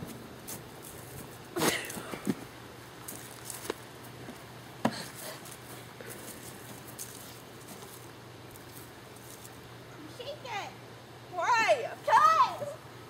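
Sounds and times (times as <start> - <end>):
faint rustling: 0.0 - 9.6
steady low hum: 0.0 - 13.0.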